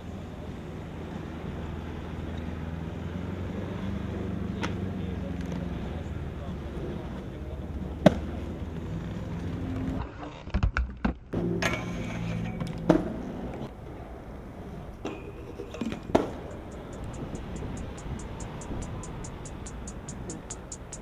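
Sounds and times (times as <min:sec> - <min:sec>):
inline skates rolling on concrete: 0:04.1 - 0:10.6, 0:11.3 - 0:16.7
fast even ticking: 0:16.0 - 0:21.0.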